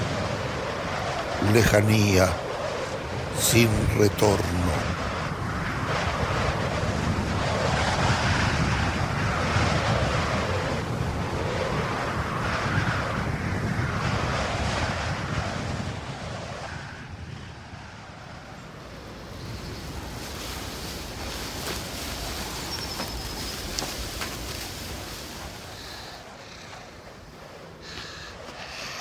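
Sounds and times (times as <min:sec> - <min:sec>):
steady rushing noise: 0:00.0 - 0:29.0.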